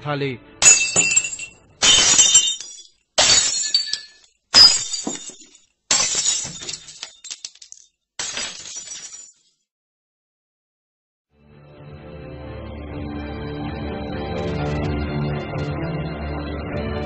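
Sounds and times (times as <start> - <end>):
glass shattering: 0.6 - 9.5.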